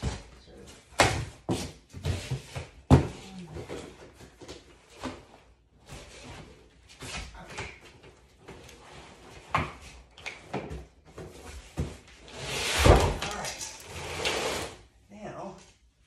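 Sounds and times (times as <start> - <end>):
box scraping along floor: 11.8 - 14.8.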